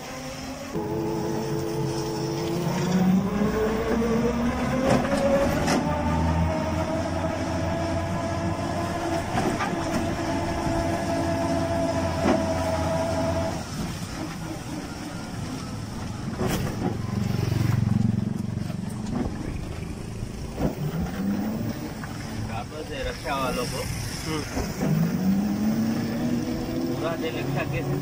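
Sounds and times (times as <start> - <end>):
electric motor drive whine: 0.0 - 22.3
rattling rumbling cab: 0.8 - 28.0.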